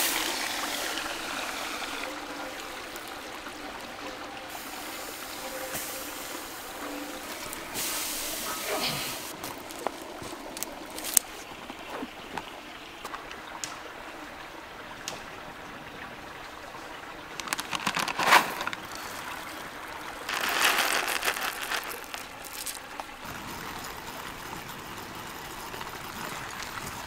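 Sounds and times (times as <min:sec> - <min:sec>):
stream running: 0:00.0 - 0:27.0
packaging crinkling: 0:17.4 - 0:19.2, 0:20.3 - 0:23.2
coffee beans pouring into grinder: 0:17.4 - 0:19.3, 0:20.2 - 0:23.0
gear clicking and rustling: 0:20.3 - 0:27.0.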